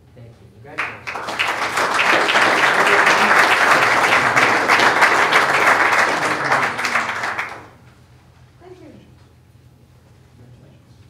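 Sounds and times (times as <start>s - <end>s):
audience applauding: 0.8s - 7.8s.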